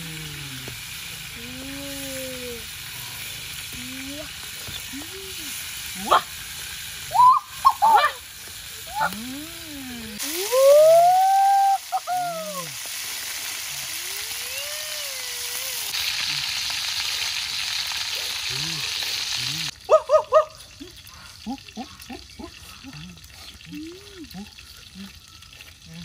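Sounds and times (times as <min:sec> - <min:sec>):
birds sizzling in a wok: 0:00.0 - 0:26.0
person's wordless calls: 0:08.9 - 0:12.8.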